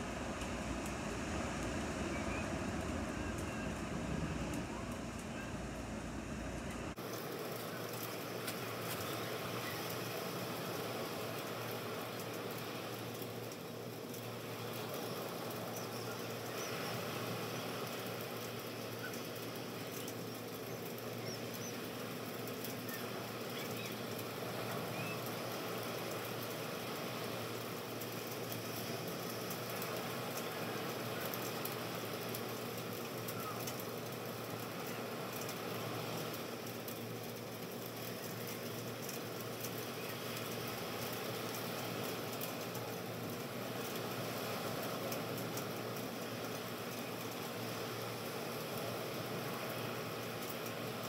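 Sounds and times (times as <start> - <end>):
room noise hiss: 0.0 - 51.0
faint high chirps: 2.0 - 3.8.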